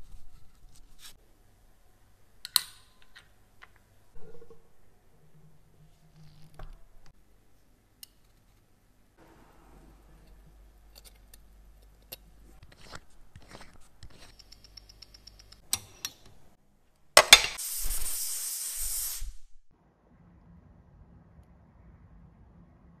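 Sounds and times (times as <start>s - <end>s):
loud air hissing: 17.6s - 19.6s.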